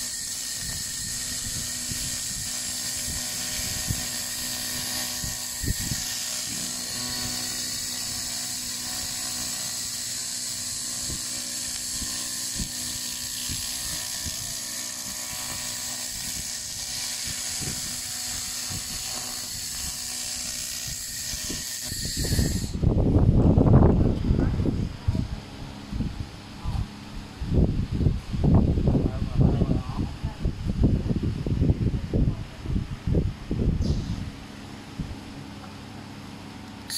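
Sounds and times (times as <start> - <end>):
low rumble on microphone: 22.2 - 35.7.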